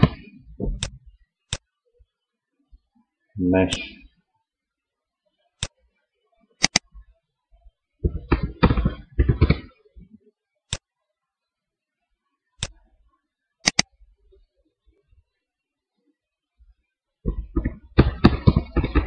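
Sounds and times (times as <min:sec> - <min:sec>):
computer mouse clicking: 0:00.8 - 0:01.7, 0:06.6 - 0:06.9, 0:13.6 - 0:13.9
keyboard typing: 0:06.6 - 0:06.9, 0:13.6 - 0:13.9.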